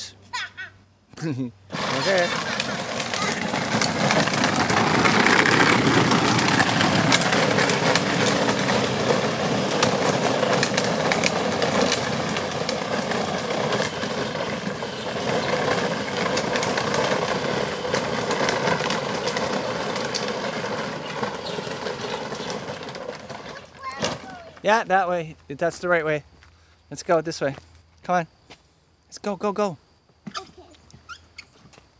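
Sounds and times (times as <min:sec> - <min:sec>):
plastic wheels rumbling on wet pavement: 0:01.7 - 0:26.1.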